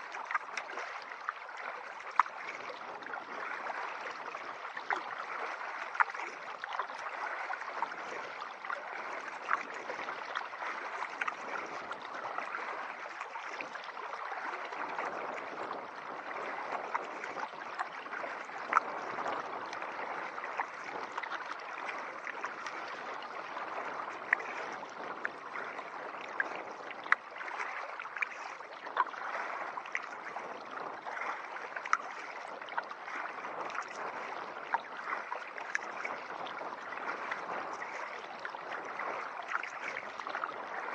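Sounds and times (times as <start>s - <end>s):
water lapping around kayak: 0.0s - 40.9s.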